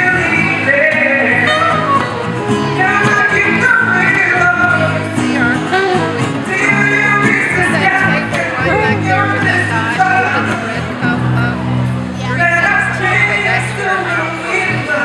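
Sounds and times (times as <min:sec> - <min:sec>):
man singing: 0:00.0 - 0:11.6, 0:12.2 - 0:15.0
electric bass: 0:00.0 - 0:15.0
strummed acoustic guitar: 0:00.0 - 0:15.0
soprano saxophone playing: 0:01.3 - 0:02.4, 0:05.5 - 0:06.3.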